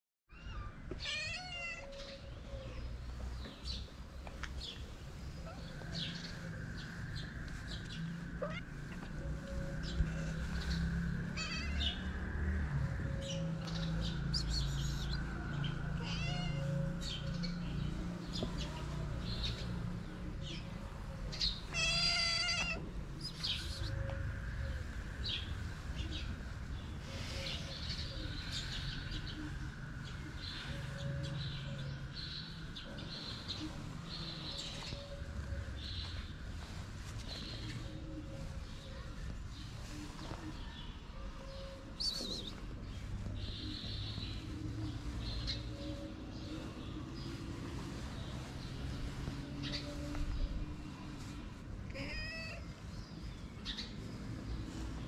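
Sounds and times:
cat meowing: 0.3s - 2.0s, 16.0s - 16.7s, 21.7s - 22.9s, 51.9s - 52.7s.

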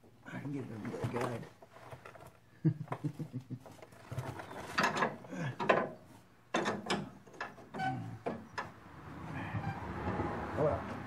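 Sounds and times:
metal scraping and clanks: 3.8s - 10.3s.

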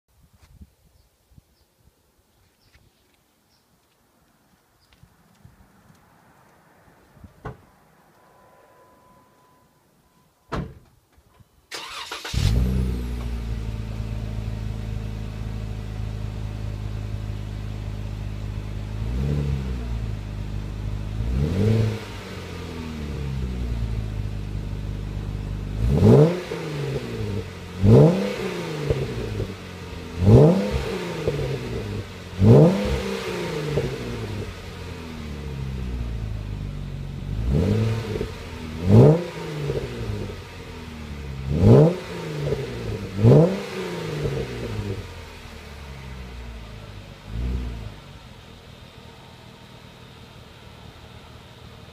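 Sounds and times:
car engine idling and revving: 11.8s - 51.9s.

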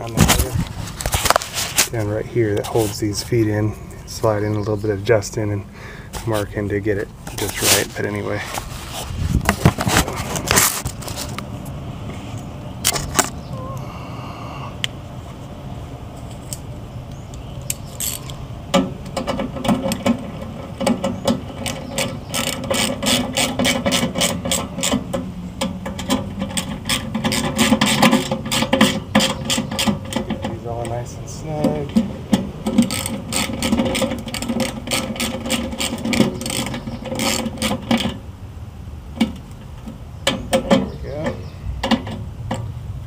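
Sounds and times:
metal knocks: 18.1s - 38.2s, 39.2s - 42.7s
ratchet wrench clicking: 32.7s - 37.8s.

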